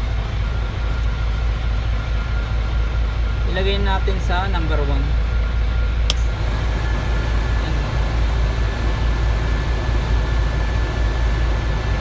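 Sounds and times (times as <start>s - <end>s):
blower fan whine: 0.0s - 12.0s
diesel engine idling: 6.0s - 12.0s.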